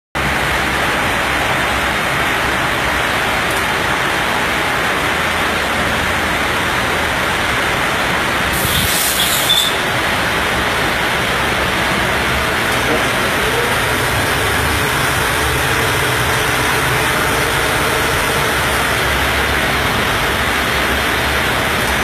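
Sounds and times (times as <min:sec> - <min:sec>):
steady rushing noise: 0:00.2 - 0:22.0
brief high hiss: 0:08.5 - 0:09.8.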